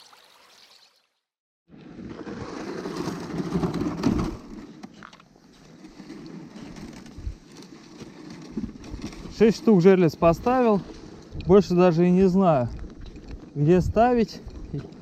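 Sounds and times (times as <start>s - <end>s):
sled scraping over ice: 1.7s - 15.0s.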